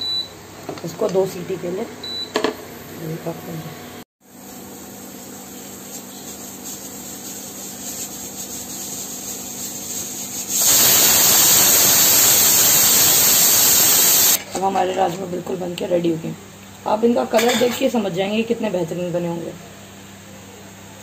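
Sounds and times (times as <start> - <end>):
pressure cooker whistling steam: 10.4 - 14.4
pressure cooker hissing: 10.5 - 14.4.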